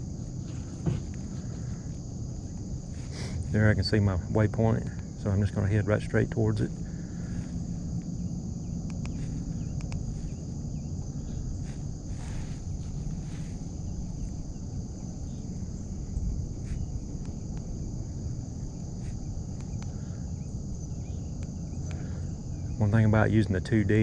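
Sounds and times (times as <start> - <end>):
continuous low rumble: 0.0 - 24.0
high insect chorus: 0.0 - 24.0
faint clicks: 8.8 - 10.1, 19.5 - 20.0.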